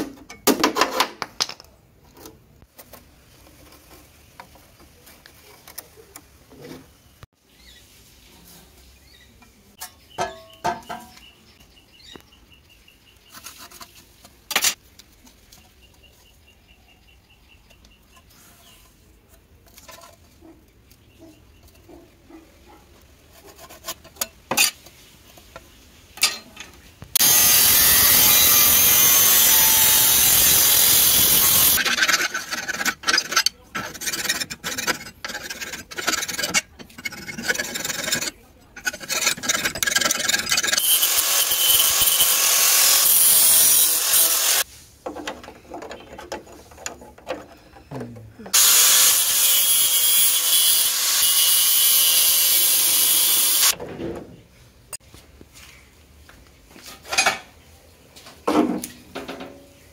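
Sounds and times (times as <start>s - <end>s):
power tool running: 27.2s - 31.8s, 40.8s - 44.6s, 48.6s - 53.7s
file rasping on sheet metal: 27.2s - 44.6s.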